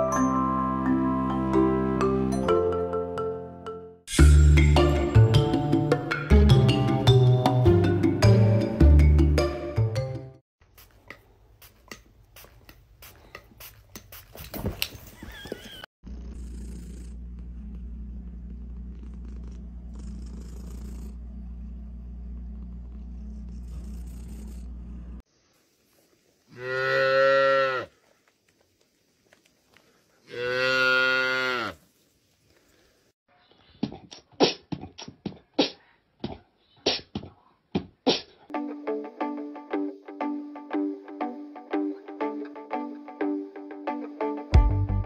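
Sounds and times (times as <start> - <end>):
cat purring: 16.1 - 25.2.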